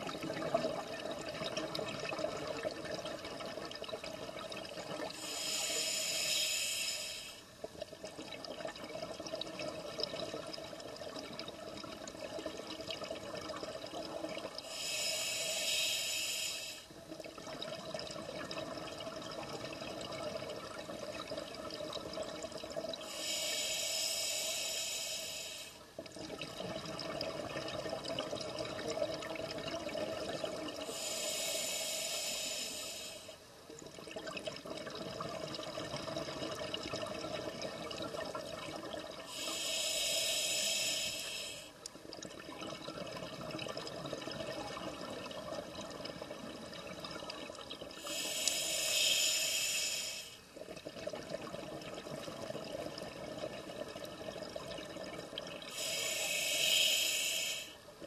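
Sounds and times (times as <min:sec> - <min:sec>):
underwater bubbling: 0:00.0 - 0:58.0
hissing regulator breaths: 0:05.2 - 0:07.4, 0:14.6 - 0:16.9, 0:23.0 - 0:25.8, 0:30.8 - 0:33.4, 0:39.3 - 0:41.8, 0:48.0 - 0:50.4, 0:55.7 - 0:57.8.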